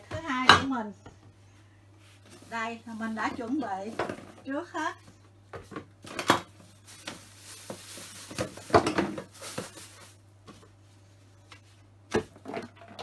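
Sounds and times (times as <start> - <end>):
kitchen items knocking and clattering: 3.2 - 4.5, 5.5 - 10.0.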